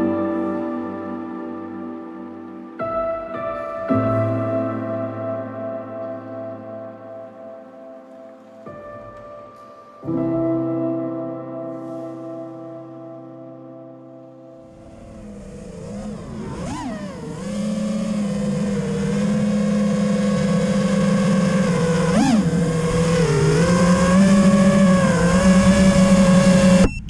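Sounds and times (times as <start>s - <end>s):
drone motors whining: 14.7s - 27.0s.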